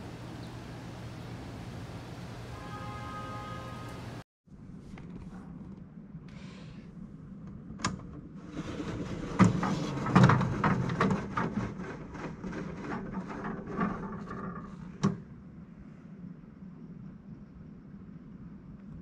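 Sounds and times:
fabric rustling and scraping: 8.4s - 15.0s.

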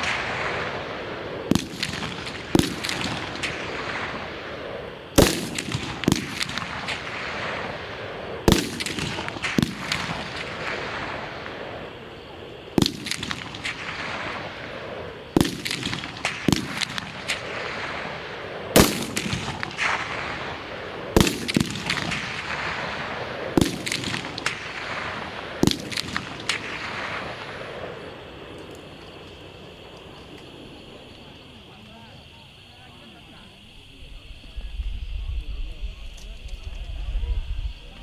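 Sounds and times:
rifle shots with echo: 0.0s - 11.9s, 12.8s - 28.6s.

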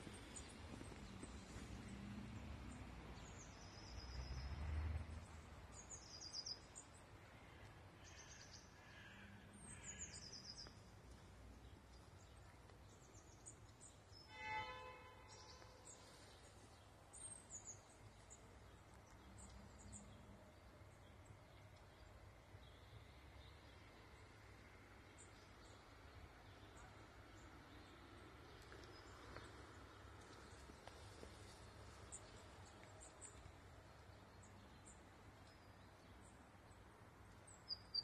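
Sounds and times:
songbirds chirping: 0.0s - 38.0s.

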